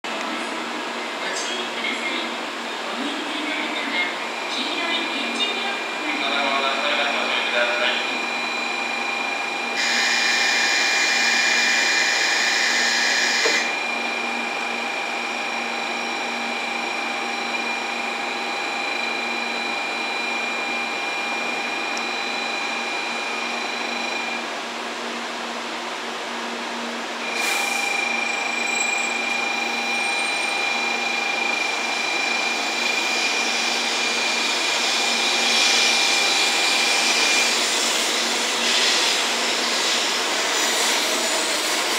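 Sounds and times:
train electrical whine: 0.1s - 24.6s, 27.0s - 41.9s
electronic tone: 8.0s - 14.6s, 18.9s - 24.4s, 27.2s - 33.4s.

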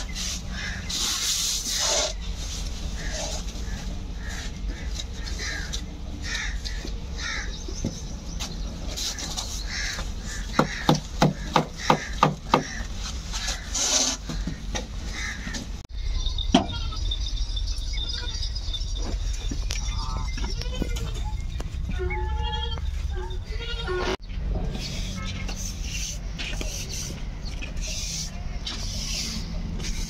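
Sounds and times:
crows cawing: 3.0s - 7.6s, 9.6s - 15.6s.

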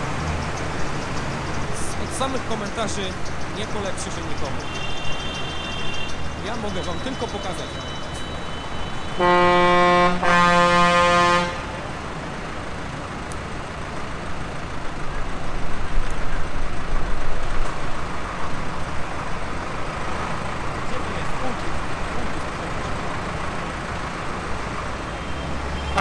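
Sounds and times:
outdoor background noise: 0.0s - 26.0s
vehicle horn blasts: 4.6s - 6.2s, 7.4s - 11.8s, 25.2s - 26.0s.

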